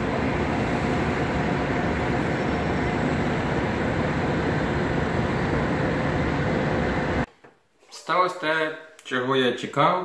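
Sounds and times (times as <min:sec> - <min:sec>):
city traffic noise: 0:00.0 - 0:07.2.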